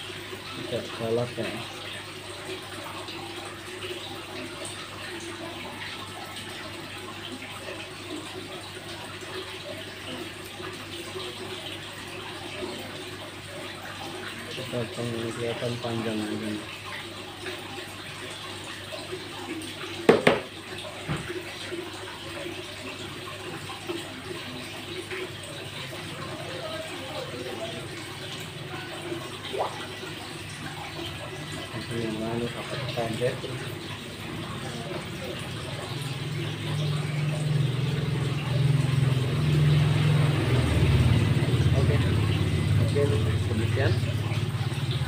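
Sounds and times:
water feature splashing: 0.0s - 45.0s
soft knock: 20.1s - 20.5s.

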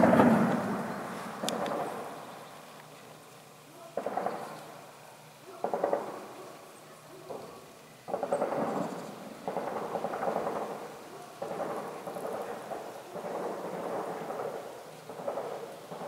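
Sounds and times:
distant weapons fire: 0.0s - 2.3s, 4.0s - 4.6s, 5.5s - 6.3s, 8.1s - 16.0s.

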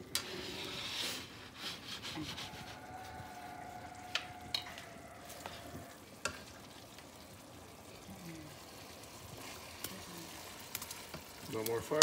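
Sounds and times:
sauce sizzling in a pan: 2.4s - 12.0s.

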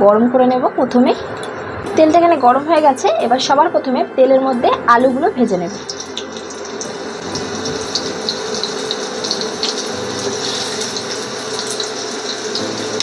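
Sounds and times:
potatoes sizzling in oil: 5.0s - 13.0s.

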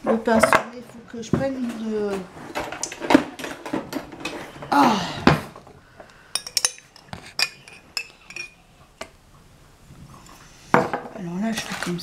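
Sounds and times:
metal spoon clinking on glass: 6.3s - 8.6s.

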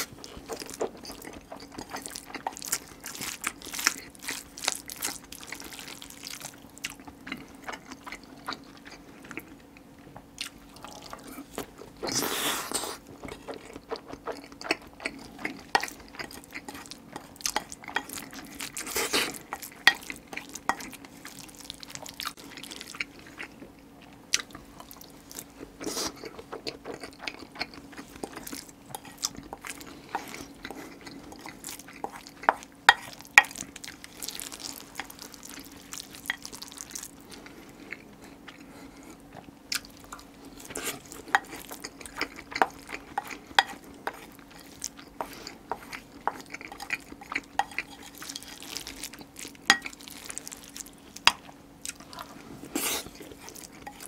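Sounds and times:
wet chewing and mouth smacks: 0.0s - 9.6s, 24.3s - 54.0s.

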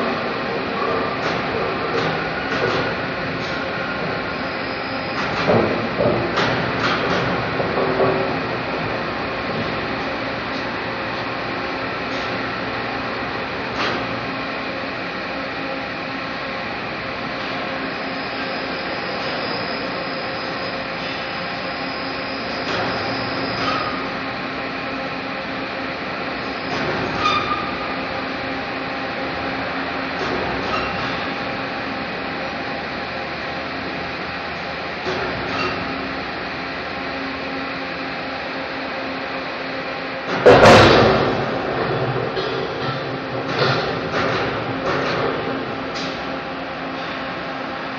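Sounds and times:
factory machinery drone: 0.0s - 47.9s.

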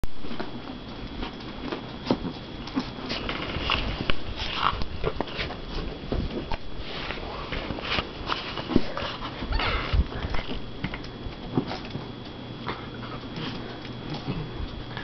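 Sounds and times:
dogs breathy noises: 8.5s - 10.6s.

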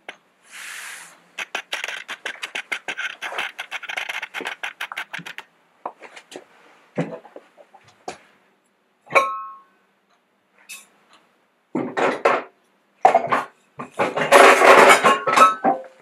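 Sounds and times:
crockery clattering: 13.1s - 16.0s.

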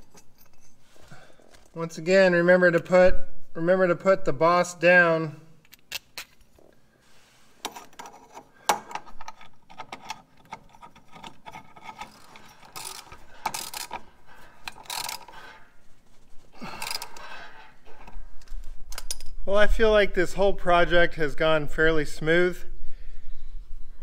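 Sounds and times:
socket ratchet clicking: 8.7s - 15.4s.

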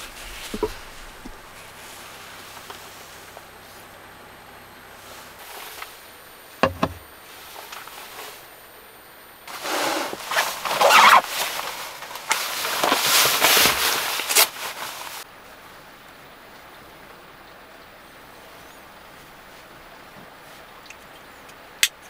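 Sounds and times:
rustling and crackling with clicks: 0.0s - 3.8s, 7.0s - 8.5s, 9.5s - 15.3s
sharp knock: 6.6s - 7.0s.

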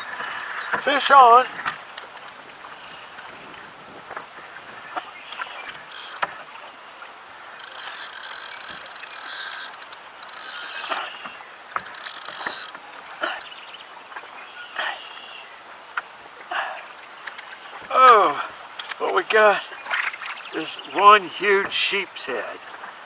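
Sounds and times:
fishing reel clicking and whirring: 5.7s - 6.4s, 7.4s - 13.5s.

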